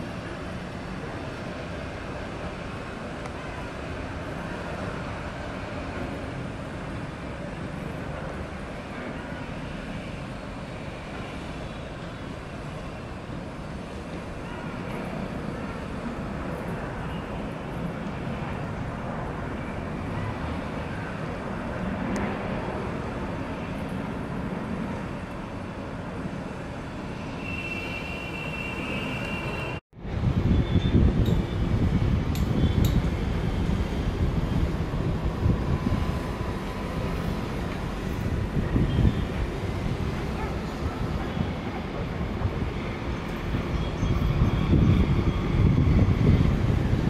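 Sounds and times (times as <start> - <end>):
city traffic noise: 0.0 - 47.0.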